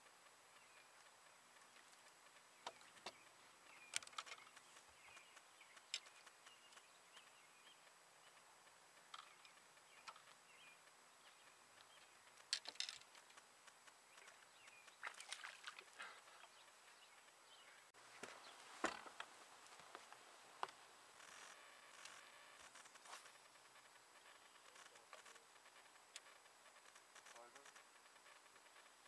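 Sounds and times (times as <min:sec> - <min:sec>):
faint bird chirps: 0:00.1 - 0:13.3, 0:21.2 - 0:29.0
clicks and knocks of handling gear: 0:12.4 - 0:13.4.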